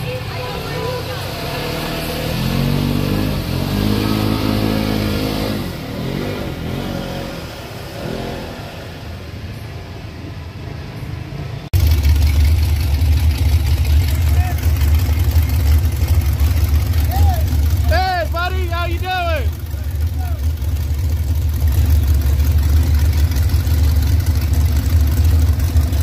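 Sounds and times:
utv engine revving: 0:00.0 - 0:09.0, 0:11.7 - 0:26.0
deep truck engine running: 0:11.7 - 0:26.0.

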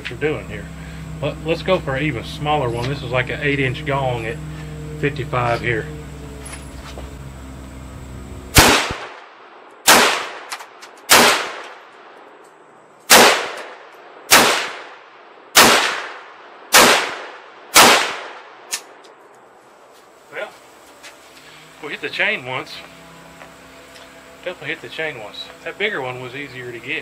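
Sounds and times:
pistol gunshots echoing: 0:08.5 - 0:11.7, 0:13.1 - 0:18.5.

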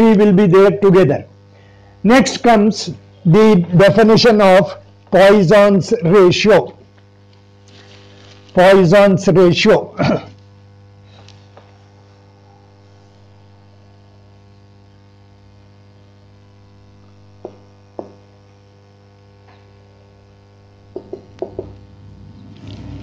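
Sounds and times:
electrical mains hum: 0:00.0 - 0:23.0
marker tapping on whiteboard: 0:17.4 - 0:18.2, 0:20.9 - 0:21.8.

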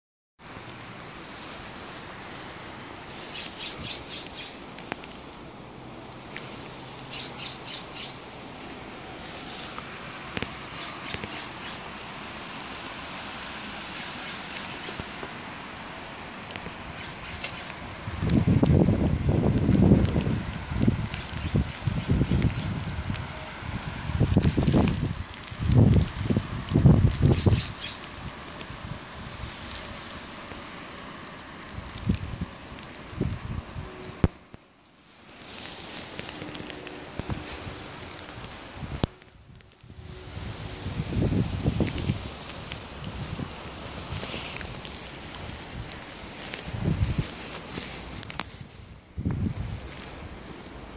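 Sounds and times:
steady outdoor hiss: 0:00.4 - 0:50.9
animal squawking calls: 0:07.1 - 0:08.2
wind buffeting microphone: 0:16.5 - 0:29.9, 0:31.6 - 0:34.4, 0:36.2 - 0:50.9.

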